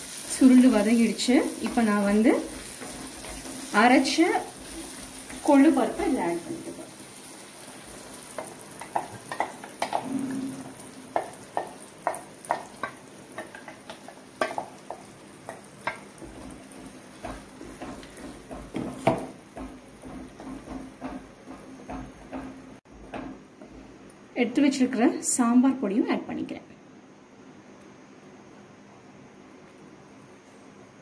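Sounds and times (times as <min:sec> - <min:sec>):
food sizzling: 0:00.0 - 0:23.4.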